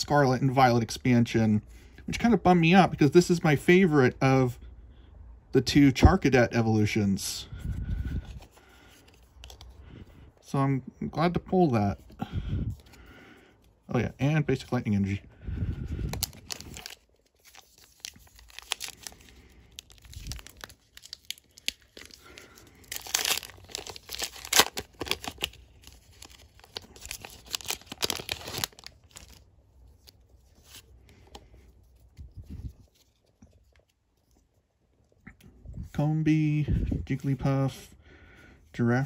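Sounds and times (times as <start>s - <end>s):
foil wrapper tearing and crinkling: 16.0s - 29.4s.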